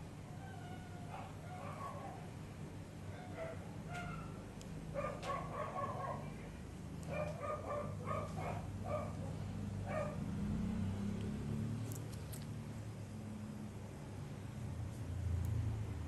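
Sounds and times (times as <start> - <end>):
small dog yapping: 3.2 - 4.4, 5.0 - 6.2.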